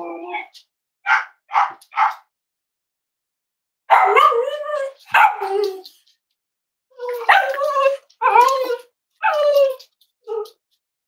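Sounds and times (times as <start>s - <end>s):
dog barking: 1.0s - 2.3s, 3.9s - 4.5s, 5.1s - 5.5s.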